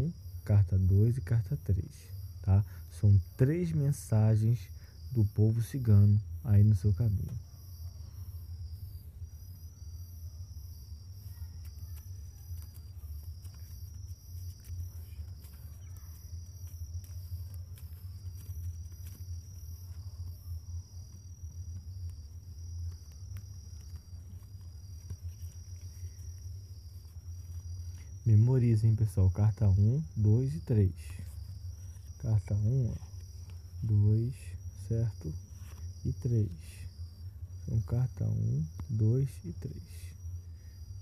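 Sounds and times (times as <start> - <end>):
crickets chirping: 0.0 - 41.0
low steady hum: 0.0 - 41.0
cards being shuffled: 11.6 - 20.4, 21.0 - 28.2.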